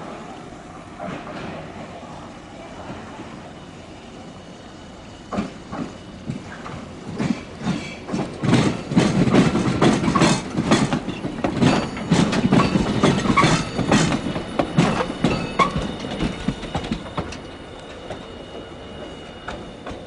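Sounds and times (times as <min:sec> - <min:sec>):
streetcar wheels clattering over joints: 0:05.3 - 0:18.3.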